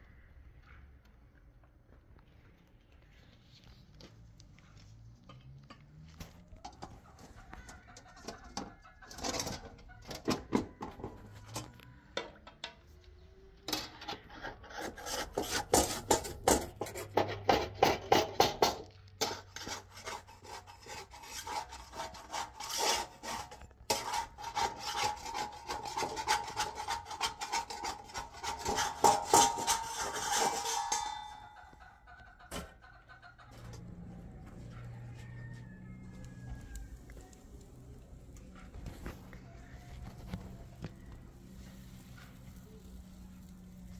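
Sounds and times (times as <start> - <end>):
metal spatula scraping a griddle: 6.8 - 11.6, 13.7 - 31.7, 41.5 - 43.9.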